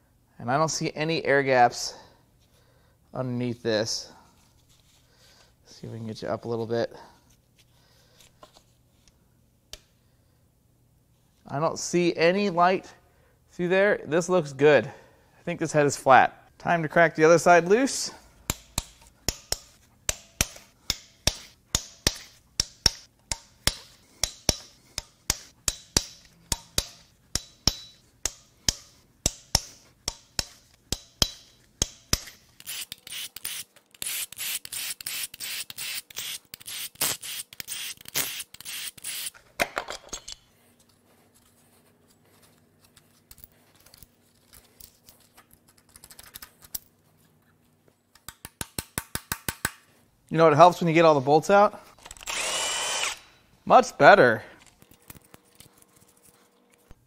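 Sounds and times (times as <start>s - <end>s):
hand ratchet clicking: 18.5s - 39.4s.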